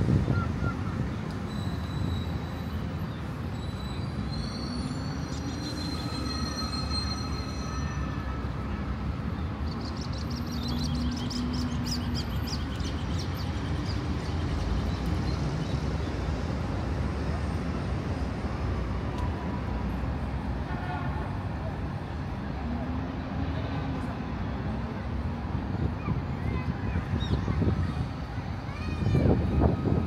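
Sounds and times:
city street traffic: 0.0 - 30.0
long high-pitched squeal: 4.6 - 8.6.

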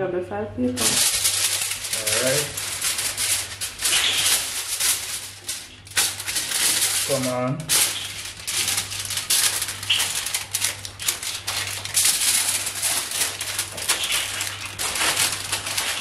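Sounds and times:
aluminium foil crinkling: 0.7 - 16.0.

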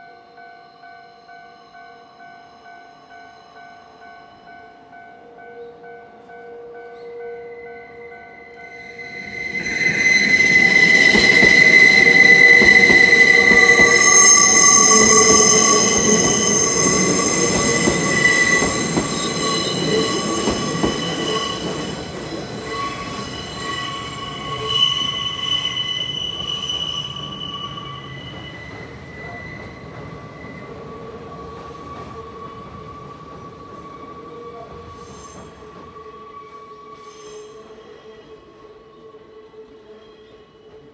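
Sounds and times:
train wheels squealing: 7.0 - 40.9
train rumble: 9.2 - 24.7.

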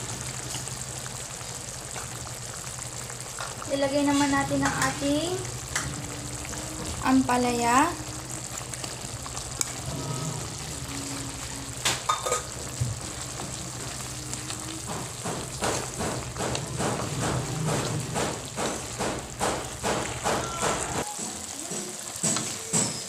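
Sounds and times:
vegetables simmering: 0.0 - 23.0
wooden spatula scraping a wok: 8.4 - 20.3.

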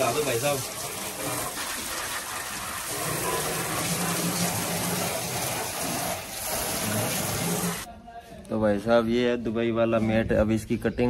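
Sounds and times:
garden hose spraying on sheet metal: 0.0 - 7.9.

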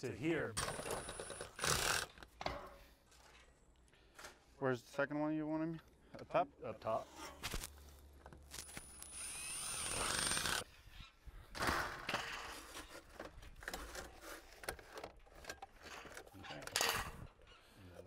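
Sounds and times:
cordless drill whine: 8.6 - 10.6.

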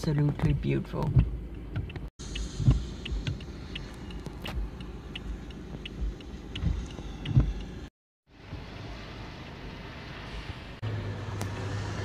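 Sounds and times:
car road and engine rumble: 0.0 - 12.0
light ticks: 1.1 - 7.8.

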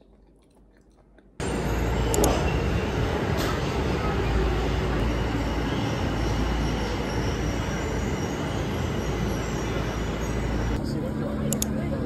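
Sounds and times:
train wheels rumbling on rail: 1.4 - 10.8.

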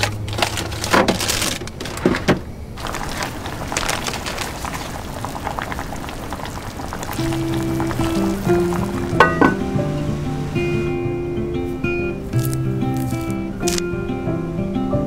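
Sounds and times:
plastic packaging rustling: 0.0 - 9.2, 12.3 - 13.8
pot bubbling at a simmer: 2.8 - 11.0.

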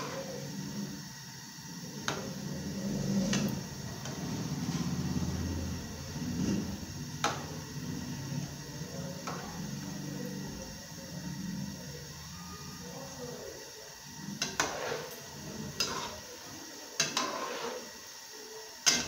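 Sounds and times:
oil sizzling and bubbling: 0.0 - 19.0
metal spoon tapping a pan: 14.4 - 14.8, 17.0 - 17.5.

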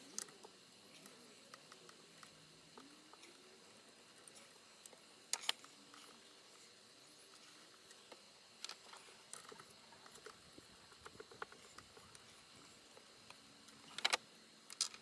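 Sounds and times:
sharp clicks: 12.9 - 15.0.

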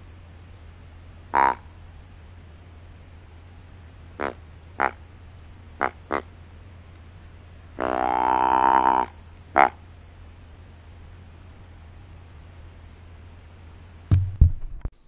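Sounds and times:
deer grunt call: 1.3 - 1.7, 4.2 - 5.0, 5.8 - 6.3, 7.8 - 9.8.

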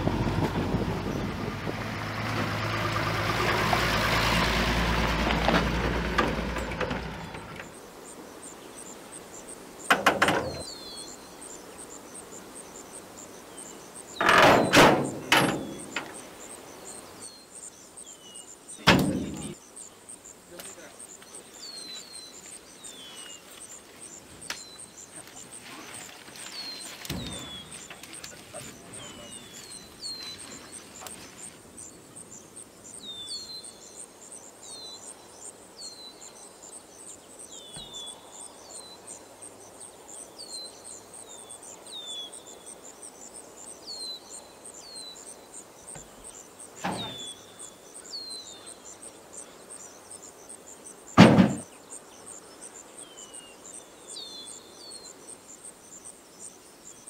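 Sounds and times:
high insect chorus: 0.0 - 57.0
bird chirping: 5.5 - 57.0
logs knocking on wooden truck bed: 9.9 - 10.6, 18.9 - 19.6, 46.8 - 47.2, 51.2 - 51.7.

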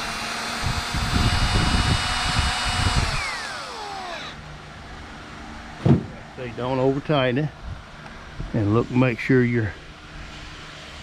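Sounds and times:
power drill motor whine: 0.0 - 4.4
sharp knock: 5.8 - 6.2.

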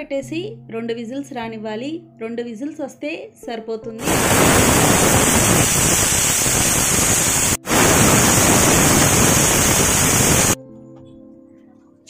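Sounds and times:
pressure cooker whistling: 4.0 - 10.6.

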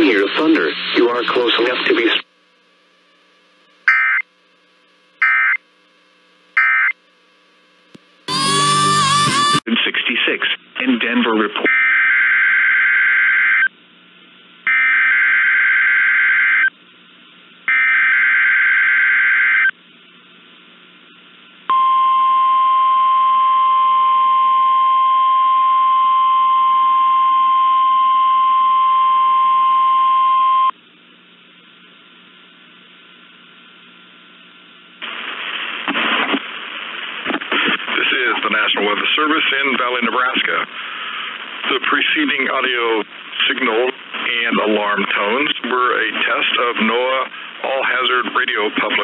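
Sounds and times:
screechy digital data bursts: 3.9 - 4.2, 5.2 - 5.6, 6.6 - 7.0
steady warning alarm tone: 3.9 - 4.2, 5.2 - 5.6, 6.6 - 7.0.

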